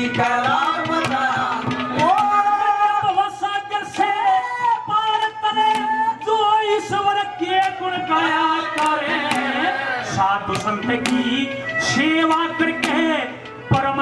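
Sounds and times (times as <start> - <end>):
man singing a long high note: 0.0 - 14.0
irregular drum strokes: 8.8 - 14.0.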